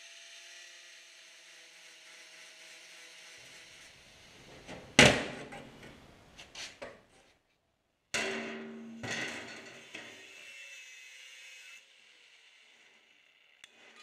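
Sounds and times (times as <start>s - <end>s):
metal bang on workbench: 5.0s - 5.5s, 8.2s - 10.2s
clattering ringing metal: 8.2s - 10.2s
angle grinder whine: 9.6s - 14.0s.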